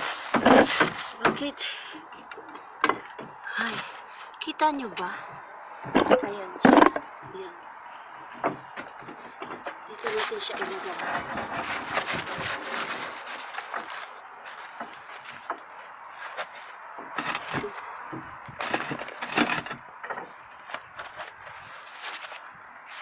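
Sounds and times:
roofing felt crinkling: 6.0 - 17.9, 20.3 - 23.0.

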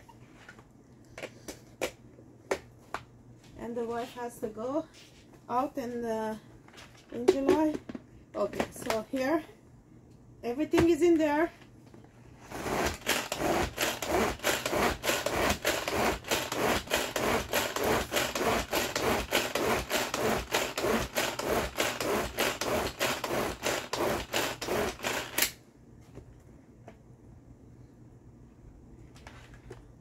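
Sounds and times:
pull-cord chopper whirring: 12.5 - 25.5.

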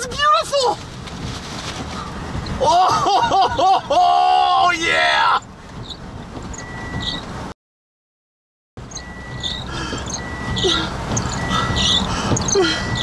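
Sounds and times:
wind and rain rumble: 0.0 - 7.5, 8.8 - 13.0
windshield wiper squeaks: 0.1 - 3.0, 5.4 - 7.5, 8.8 - 13.0
high electronic beeps: 8.9 - 13.0.

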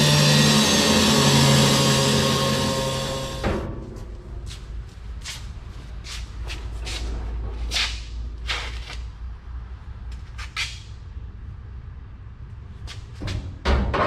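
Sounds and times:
sheet metal scraping and swishing: 0.0 - 9.0.

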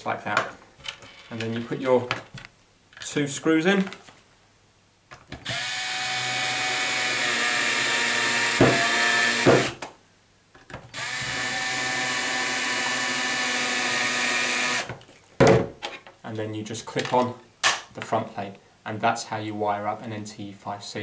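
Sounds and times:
cordless drill motor whine: 5.4 - 9.7, 10.9 - 14.9
sharp knocks: 8.6 - 9.8.

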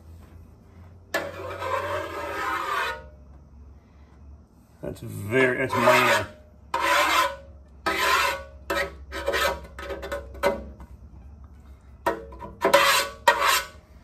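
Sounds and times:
hand scraping steel oil pan: 1.1 - 3.2, 5.3 - 10.8, 12.0 - 13.9.

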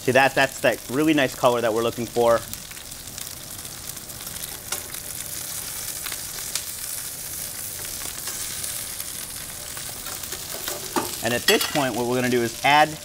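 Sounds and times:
mushrooms sizzling in oil: 0.0 - 13.0
metal tongs clicking on pan: 4.7 - 5.0, 10.0 - 12.0.

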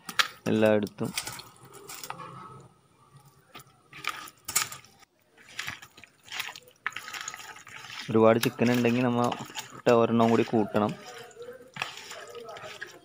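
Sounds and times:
hands squelching raw chicken: 5.3 - 13.0.

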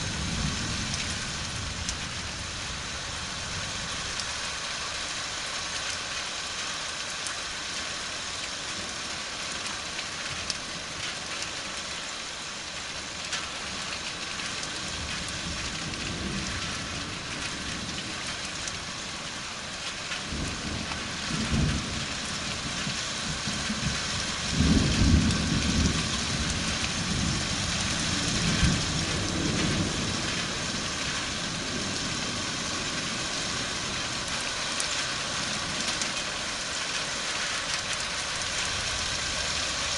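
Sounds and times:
steady rain falling: 0.0 - 39.9
rolling thunder: 20.2 - 33.2.

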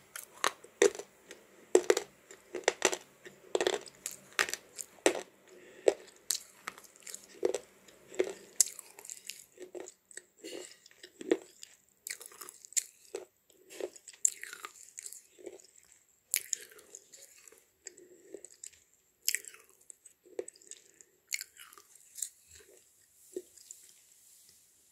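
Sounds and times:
slate chips crunched between teeth: 3.6 - 5.3.

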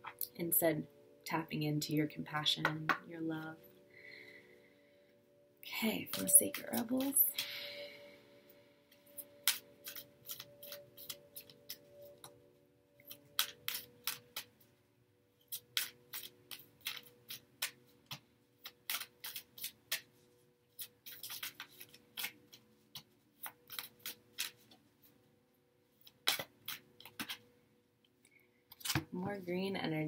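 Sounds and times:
cards being shuffled: 9.2 - 11.8, 13.1 - 14.5, 15.5 - 20.1, 20.7 - 24.8, 26.0 - 27.4, 28.7 - 29.2.

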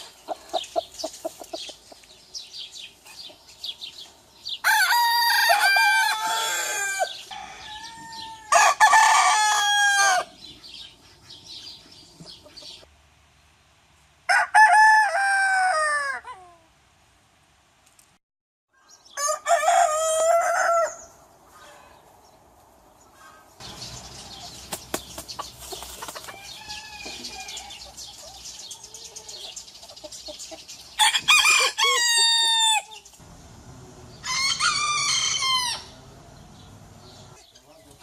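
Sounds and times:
background noise: 0.0 - 38.0
rooster crowing: 4.6 - 10.3, 14.3 - 16.3, 19.2 - 21.1, 26.3 - 27.8, 31.0 - 32.9, 34.1 - 36.0.

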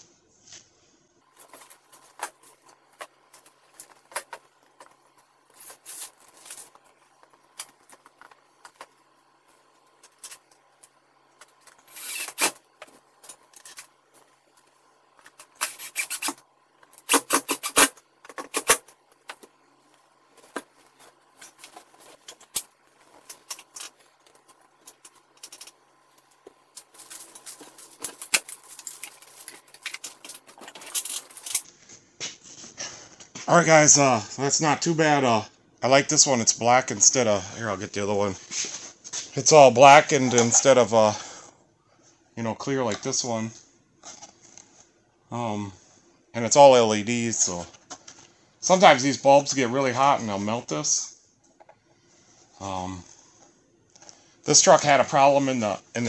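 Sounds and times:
crinkly handling noise: 0.0 - 33.5
hand tools clicking and scraping: 1.2 - 33.5.

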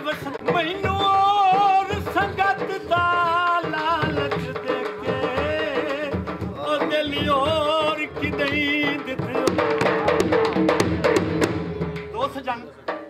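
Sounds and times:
man singing folk song: 0.0 - 10.3
dhol drums beating: 0.0 - 13.0.

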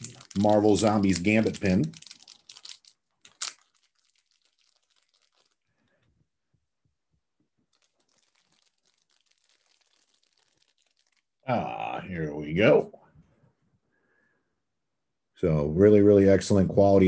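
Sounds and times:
wrapper crinkling: 0.0 - 6.2, 7.6 - 11.4.

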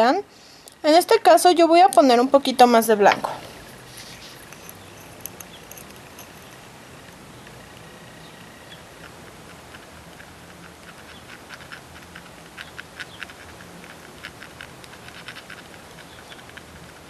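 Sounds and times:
tool tip clicking and scratching: 4.1 - 6.6, 9.0 - 17.0.

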